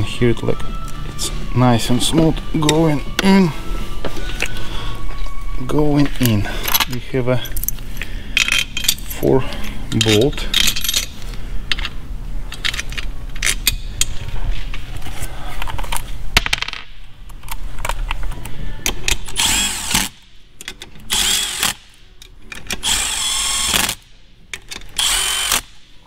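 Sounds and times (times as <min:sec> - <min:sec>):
metal parts clicking and rattling: 0:08.4 - 0:14.3.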